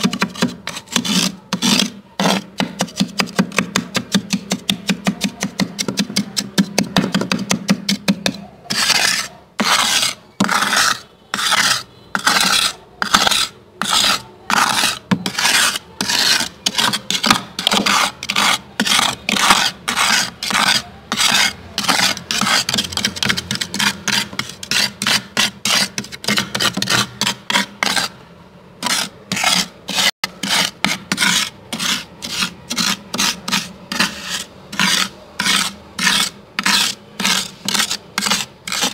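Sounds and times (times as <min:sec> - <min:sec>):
freezer frost being scraped: 0:00.0 - 0:28.2, 0:28.8 - 0:38.9.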